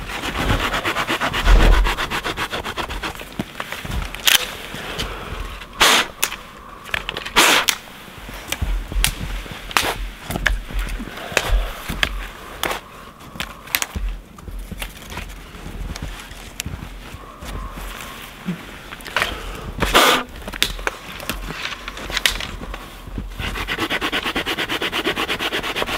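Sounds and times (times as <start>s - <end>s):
dry branches snapping: 1.5s - 16.8s, 19.0s - 22.9s
twigs snapping and clicking: 3.1s - 5.1s, 5.7s - 16.8s, 20.4s - 22.8s.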